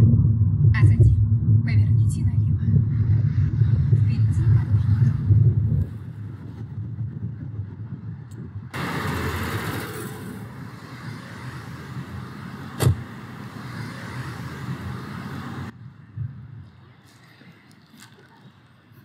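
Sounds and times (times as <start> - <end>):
rush of noise: 0.0 - 17.6
car road rumble: 0.0 - 19.0
sharp thump: 12.8 - 13.1.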